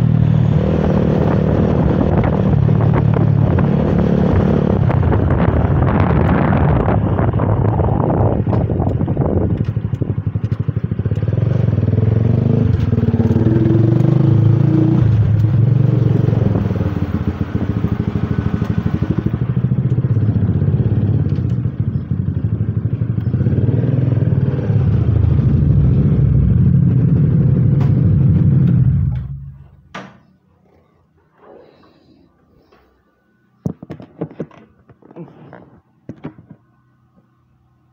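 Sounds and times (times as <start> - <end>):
motorcycle engine running: 0.0 - 29.8.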